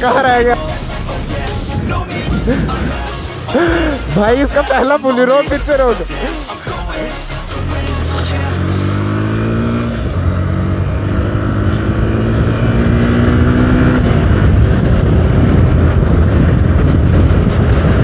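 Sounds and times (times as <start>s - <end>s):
wind and road noise: 0.0s - 18.0s
motorcycle engine accelerating: 7.5s - 18.0s.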